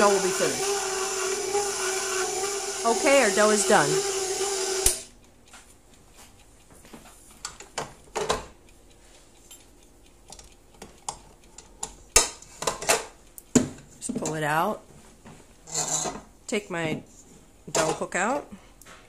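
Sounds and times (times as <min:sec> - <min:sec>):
stand mixer motor running: 0:00.0 - 0:05.1.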